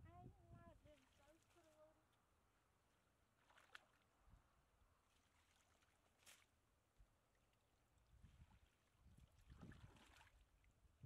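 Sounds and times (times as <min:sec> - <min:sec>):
muddy water sloshing: 0:00.8 - 0:01.9, 0:03.3 - 0:04.3, 0:05.0 - 0:10.8
water splashes: 0:03.4 - 0:04.2, 0:05.0 - 0:06.6, 0:08.2 - 0:10.8.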